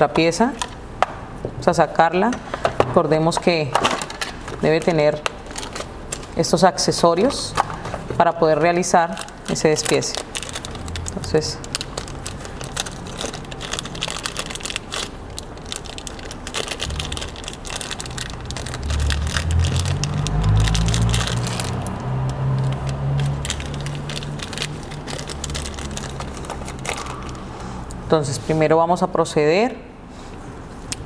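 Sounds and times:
plastic bag crinkling: 3.5s - 27.8s.

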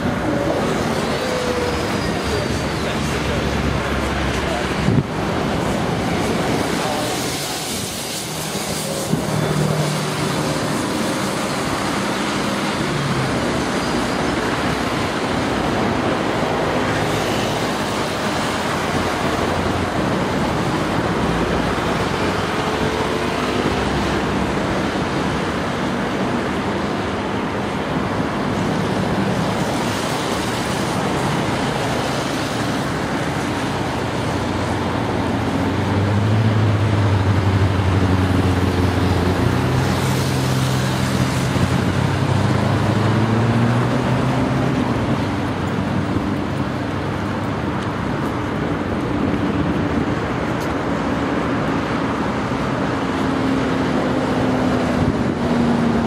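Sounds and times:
heavy vehicle engine hum: 0.0s - 56.0s
road traffic: 0.0s - 56.0s.

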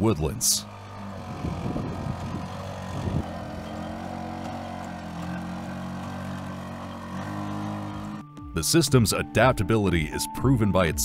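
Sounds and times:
robot engine droning hum: 0.0s - 8.3s.

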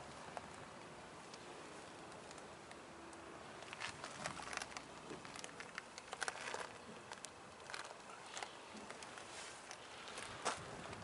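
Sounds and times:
faint footsteps crunching: 3.6s - 11.0s.

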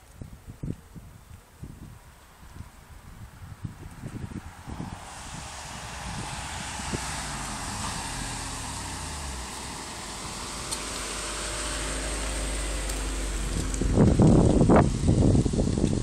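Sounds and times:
engine running as vehicle passes: 4.2s - 16.0s.

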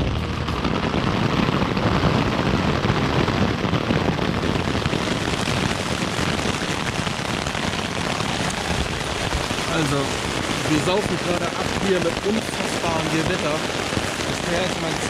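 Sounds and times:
heavy rain pelting a tent: 0.0s - 15.0s.

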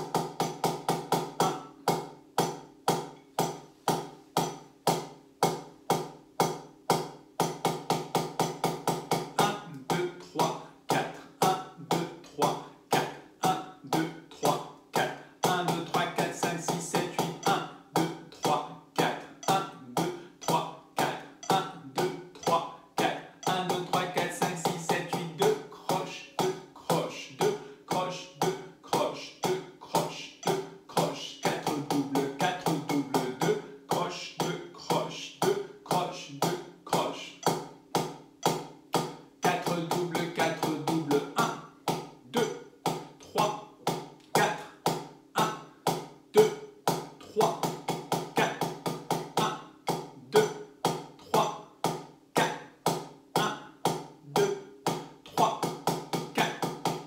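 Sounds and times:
drumsticks playing strokes: 0.0s - 57.0s
person counting softly: 1.4s - 1.9s, 9.4s - 37.6s, 39.4s - 44.8s, 45.4s - 46.6s, 47.2s - 47.7s, 48.4s - 48.6s, 49.4s - 50.6s, 51.2s - 51.7s, 52.4s - 52.7s, 53.4s - 54.7s, 55.3s - 55.6s, 56.3s - 56.7s.

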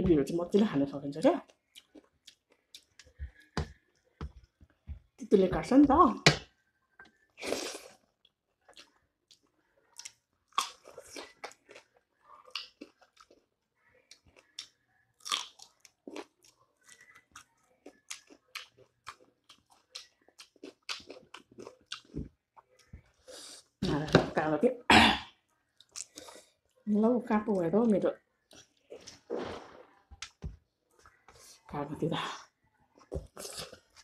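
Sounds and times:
person chewing and crunching food: 1.2s - 5.2s, 6.4s - 23.8s, 25.6s - 26.8s, 28.4s - 31.7s, 32.9s - 34.0s
chilli being bitten with crunch: 7.4s - 13.4s, 14.1s - 23.5s.

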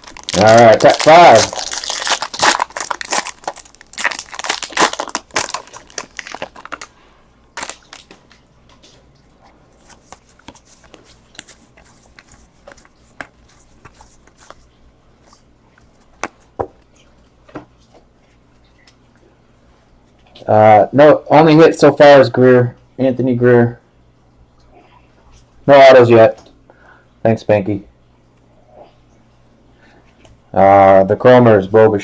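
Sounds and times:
foil wrapper crinkling and tearing: 0.0s - 7.0s, 7.6s - 8.4s, 9.8s - 14.6s
cards clicking and rustling: 9.8s - 14.6s.

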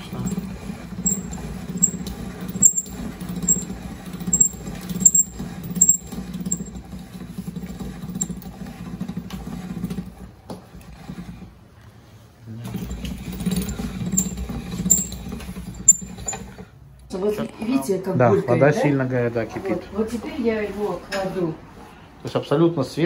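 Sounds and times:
pasta machine humming: 0.0s - 16.8s.

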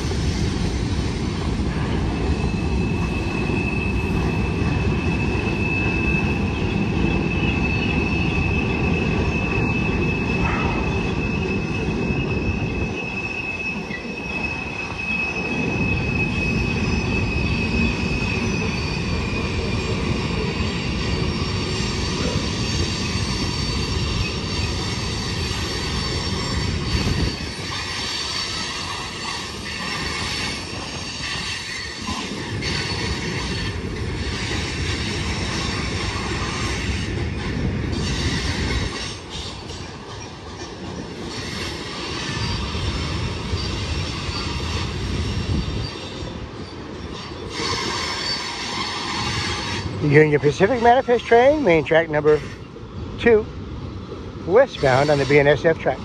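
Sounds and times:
train wheels rumbling on rail: 0.0s - 56.0s
high-pitched flange squeal: 2.2s - 24.6s.

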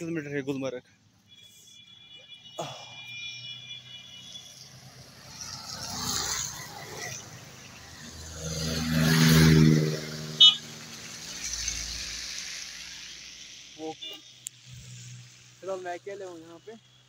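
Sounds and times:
car engine passing: 4.2s - 15.8s
tyre hiss on wet road: 10.2s - 17.0s.

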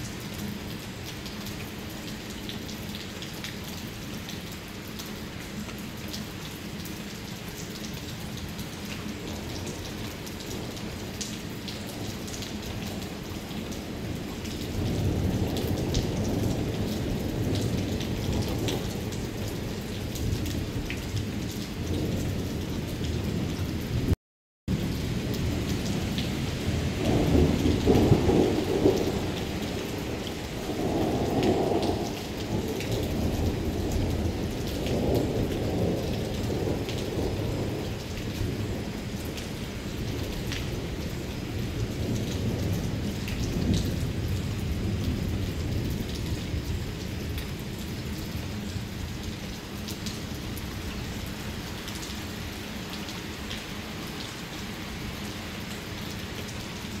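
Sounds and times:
rain falling steadily: 0.0s - 57.0s
thunder rumbling: 21.8s - 39.4s.

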